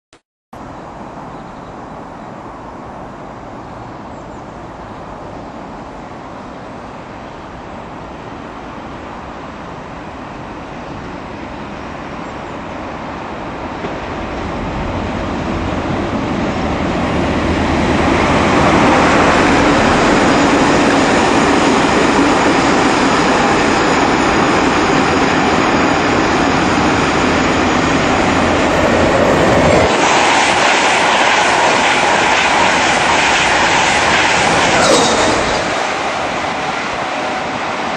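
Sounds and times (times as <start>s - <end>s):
train coaches rolling by: 1.9s - 37.9s
diesel locomotive engine working: 2.0s - 37.9s.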